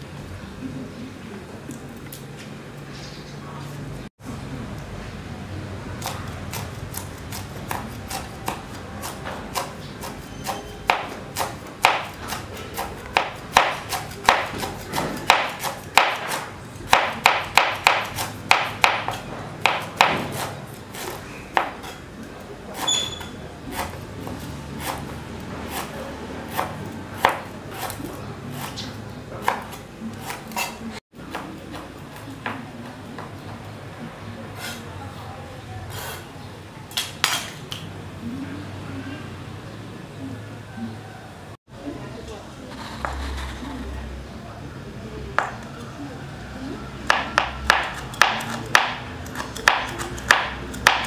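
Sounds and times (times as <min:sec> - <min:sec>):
knife chopping on cutting board: 0:06.0 - 0:22.0, 0:23.7 - 0:31.9, 0:47.1 - 0:51.0.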